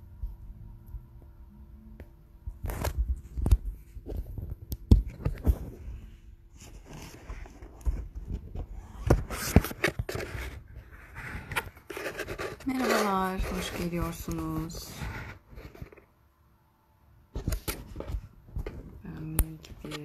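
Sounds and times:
rubbing against microphone: 5.2 - 16.1.

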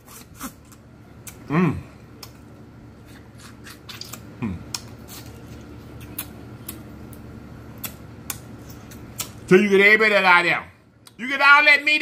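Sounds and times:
wet mouth clicks and lip smacks: 3.4 - 5.2, 6.0 - 6.8, 7.8 - 9.4.

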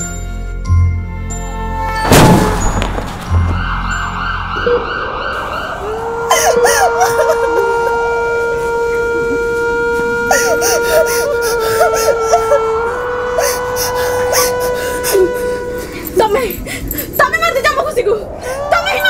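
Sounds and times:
wavering siren wail: 1.4 - 19.0
loud sudden hit: 2.0 - 4.0
long steady tone: 5.3 - 17.2
woman crying and wailing: 5.8 - 8.2, 10.3 - 19.0.

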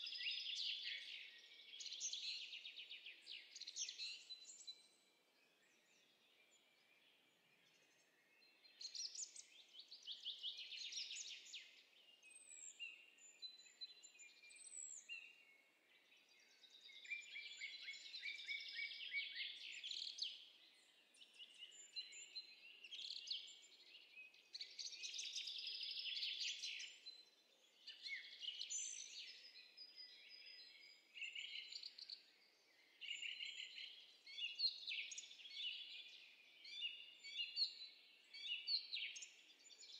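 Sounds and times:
songbirds trilling and chirping: 0.0 - 39.9.

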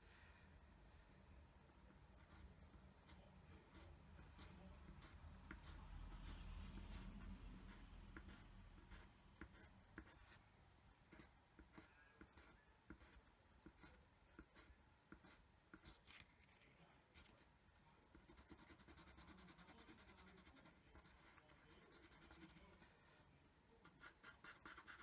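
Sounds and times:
pencil scratching on paper: 2.2 - 10.4, 11.1 - 16.1, 18.1 - 23.0, 23.8 - 25.0.

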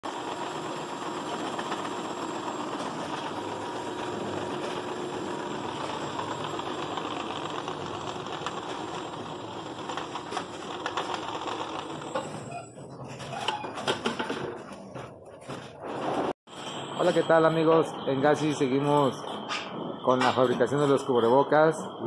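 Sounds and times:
machinery running: 0.0 - 12.7.

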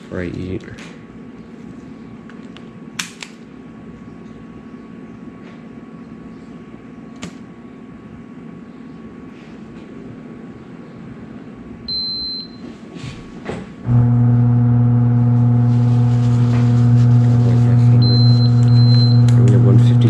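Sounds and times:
garage door opener motor humming: 13.7 - 20.0.

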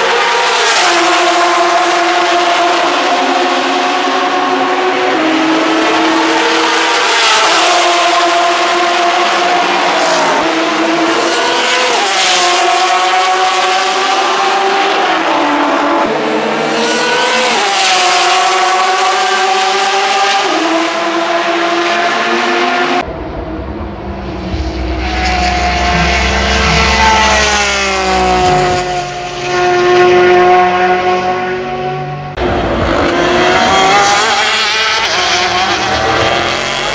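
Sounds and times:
race engine at high revs: 0.0 - 23.1, 23.9 - 36.9
deep rumbling engine: 23.0 - 29.6.

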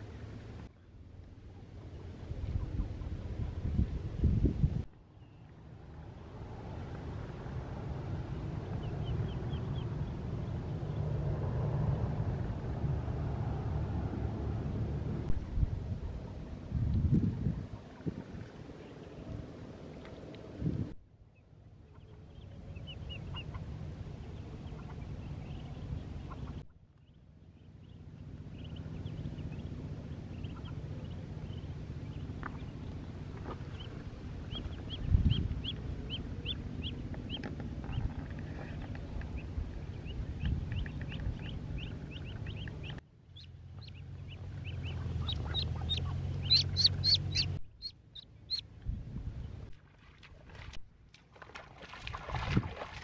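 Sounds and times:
steady low rumble: 0.0 - 49.8
ducklings peeping: 8.2 - 11.1, 21.3 - 48.7.

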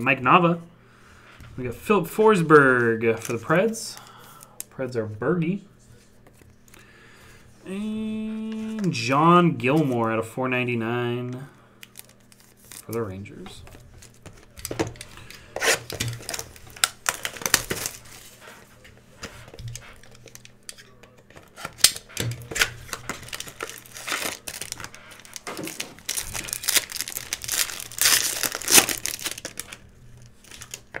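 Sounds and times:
foil wrapper crinkling: 11.8 - 18.7, 19.3 - 31.0
foil pack tearing open: 11.9 - 13.0, 13.8 - 18.3, 19.6 - 31.0.

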